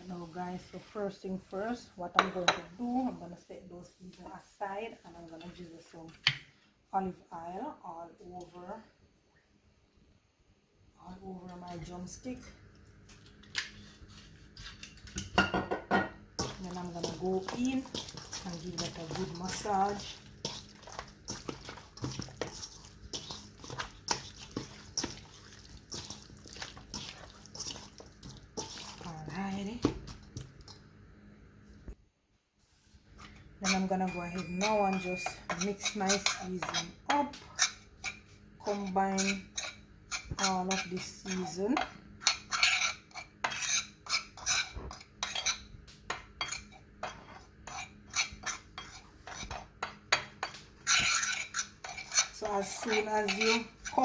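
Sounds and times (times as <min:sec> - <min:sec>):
fork scraping ceramic plate: 0:37.5 - 0:45.7, 0:46.4 - 0:50.0, 0:50.8 - 0:54.0.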